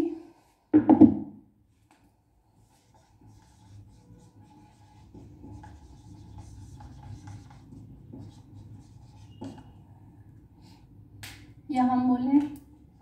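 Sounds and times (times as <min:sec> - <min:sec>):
marker scratching on whiteboard: 0:02.6 - 0:09.9.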